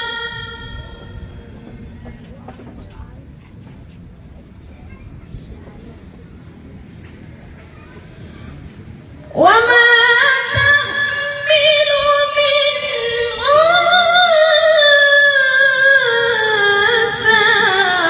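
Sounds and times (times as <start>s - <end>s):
woman reciting melodically: 0.0s - 1.4s, 9.3s - 18.0s.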